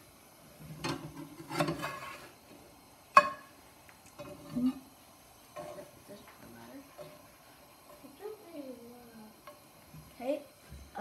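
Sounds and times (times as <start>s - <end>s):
metal spatula scraping pan: 0.8s - 2.4s, 5.6s - 6.0s
metal clink on pan: 3.2s - 3.5s.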